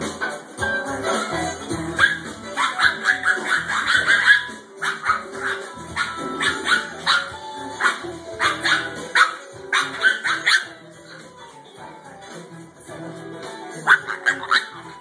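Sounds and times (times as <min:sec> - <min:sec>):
music: 0:00.0 - 0:15.0
dog barking and yelping: 0:01.2 - 0:11.3, 0:13.8 - 0:15.0.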